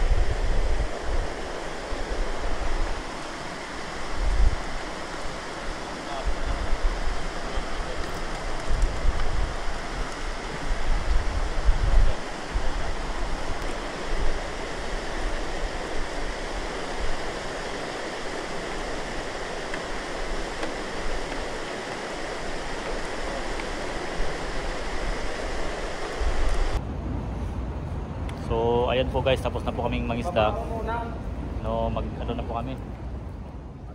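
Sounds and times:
river water rushing: 0.0s - 26.8s
low rumbling gusts: 0.0s - 33.9s.

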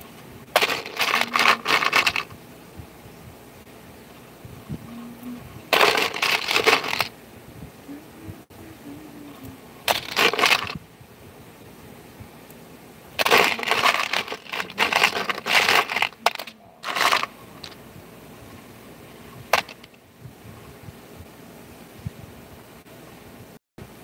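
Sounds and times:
small parts rattling in plastic bin: 0.5s - 2.3s, 5.7s - 7.1s, 9.9s - 10.8s, 13.2s - 17.8s, 19.6s - 20.0s.

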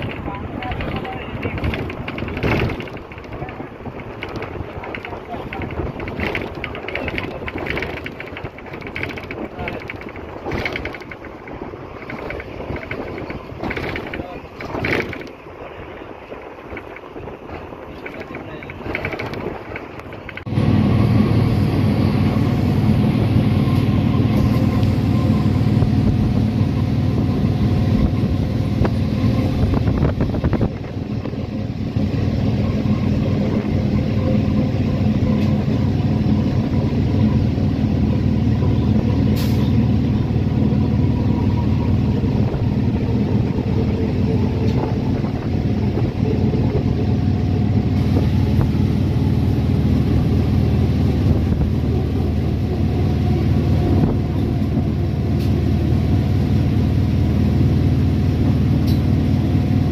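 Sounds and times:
wind noise: 0.0s - 21.8s, 22.4s - 38.0s, 38.6s - 55.6s
train rumbling with low hum: 0.0s - 59.9s.

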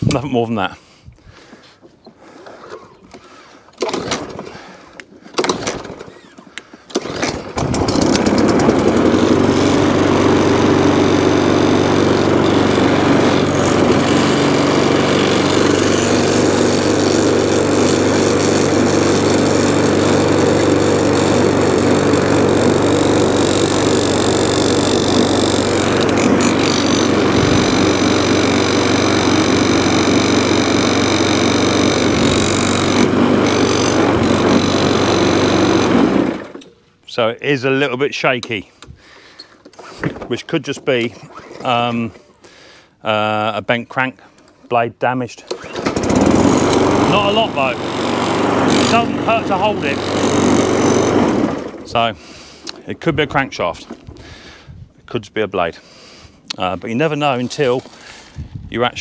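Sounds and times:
lawn mower engine running: 3.2s - 36.8s, 45.4s - 54.6s.

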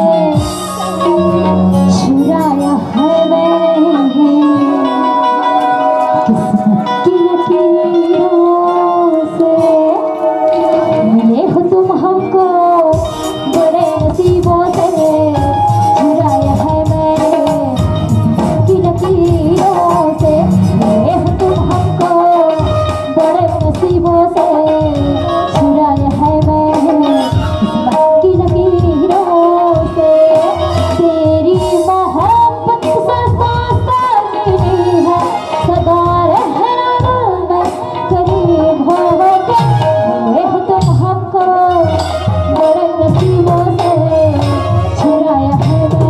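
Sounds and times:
melodic instrumental accompaniment: 0.0s - 46.0s
steady drum beat: 12.9s - 46.0s.

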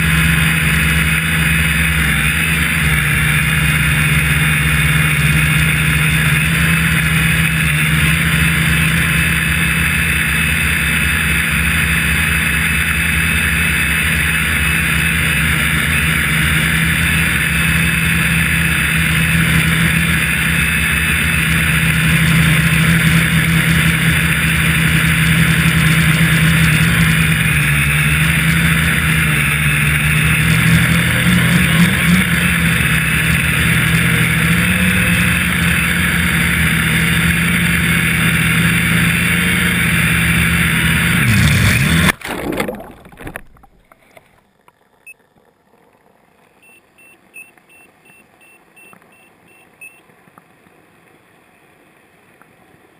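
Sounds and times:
drone propellers whirring: 0.0s - 42.2s
splash into water: 42.0s - 43.9s.

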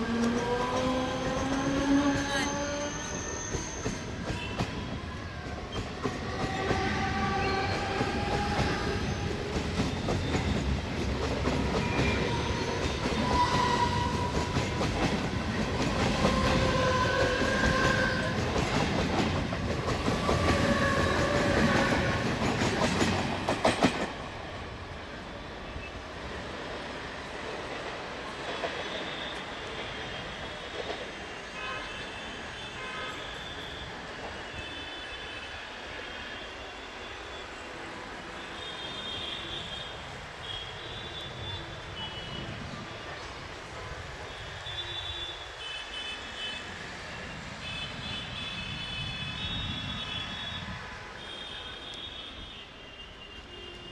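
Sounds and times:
train rumble: 0.0s - 25.9s
train wheels clicking over rail joints: 5.7s - 24.3s.

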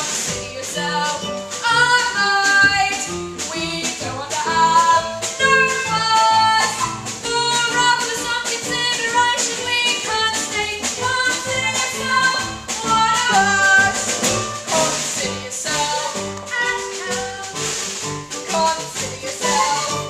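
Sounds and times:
song with singing voice: 0.0s - 20.0s.

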